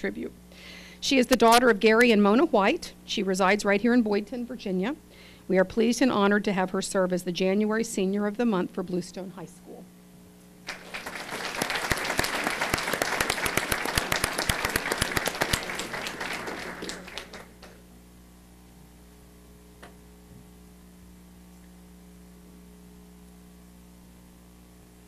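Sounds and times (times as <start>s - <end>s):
steady hum: 0.0s - 25.0s
audience applauding: 10.7s - 17.8s.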